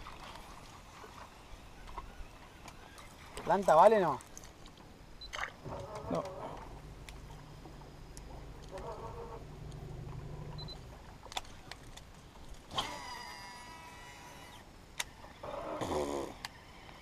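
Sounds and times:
low hum: 0:05.6 - 0:15.5.

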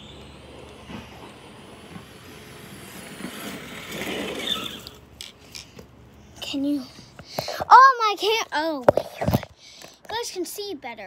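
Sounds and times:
rc car motor whine: 0:00.0 - 0:05.6
tyres rolling on concrete: 0:00.5 - 0:05.9.

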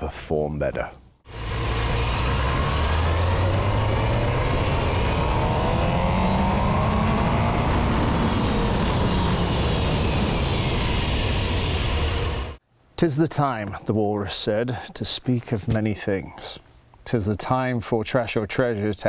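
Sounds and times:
wind rush: 0:01.3 - 0:12.6.

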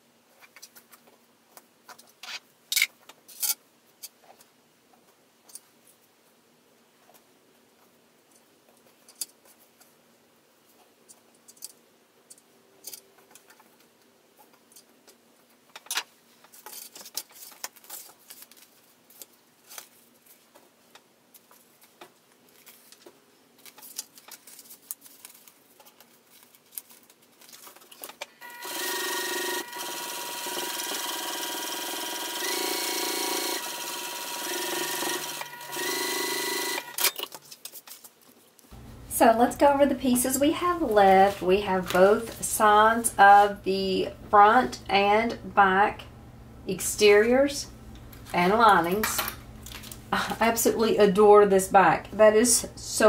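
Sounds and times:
sewing machine stitching: 0:28.4 - 0:37.3.

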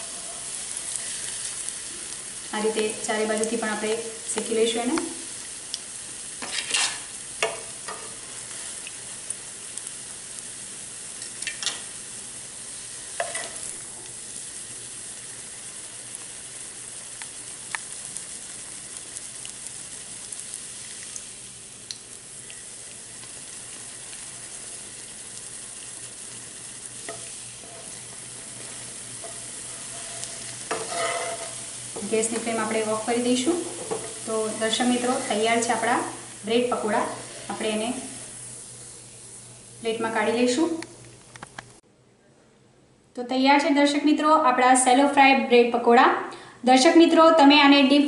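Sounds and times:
food sizzling in oil: 0:00.0 - 0:41.0
spatula knocking and scraping pan: 0:06.4 - 0:08.2, 0:27.0 - 0:32.6, 0:33.6 - 0:34.2.

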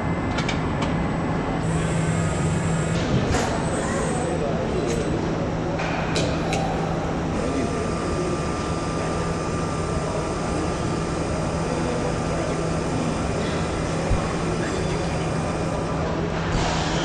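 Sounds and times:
assembly machinery humming: 0:00.0 - 0:17.0
thin steady whine: 0:00.0 - 0:17.0
sharp click and hiss: 0:16.4 - 0:17.0.

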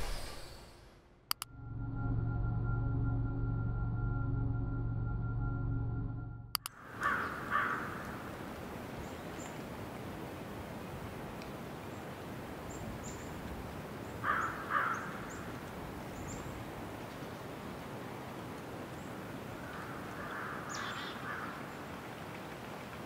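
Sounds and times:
outdoor hiss: 0:00.0 - 0:01.1
crow cawing: 0:06.8 - 0:08.3, 0:14.2 - 0:15.5, 0:19.6 - 0:21.6.

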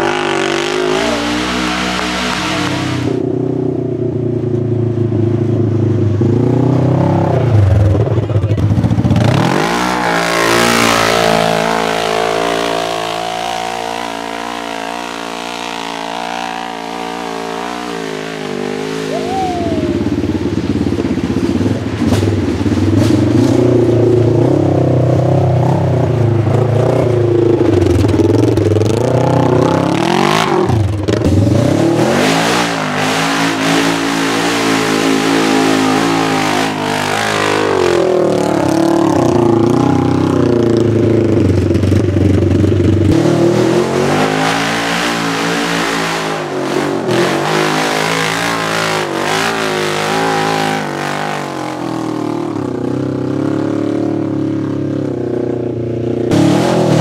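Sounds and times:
off-road buggy engine revving: 0:00.0 - 0:57.0.

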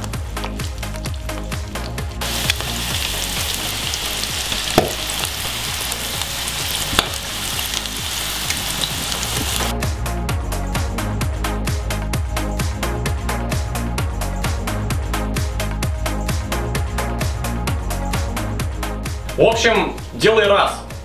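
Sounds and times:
deep-frying sizzle with pops: 0:00.0 - 0:09.7
background music with steady beat: 0:00.0 - 0:21.0.

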